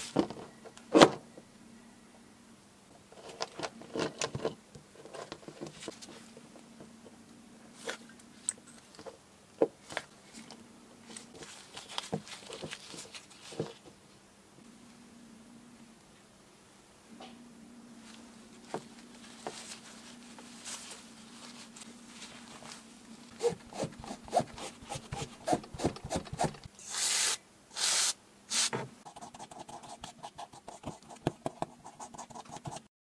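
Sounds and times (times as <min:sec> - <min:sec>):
cotton swab scratching plastic: 0:28.6 - 0:32.9.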